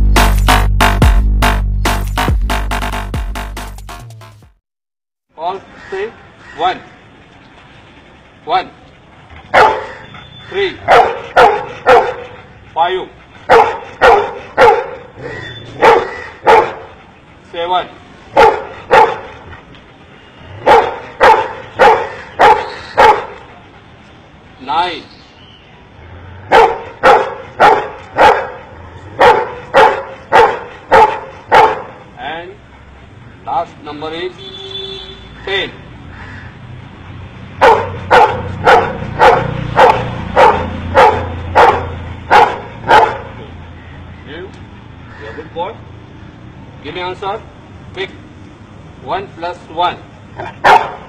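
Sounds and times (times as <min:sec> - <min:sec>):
dog barking: 0:09.5 - 0:12.4, 0:13.4 - 0:17.0, 0:18.3 - 0:19.4, 0:20.5 - 0:23.6, 0:26.4 - 0:32.1, 0:37.5 - 0:43.7, 0:50.4 - 0:51.0.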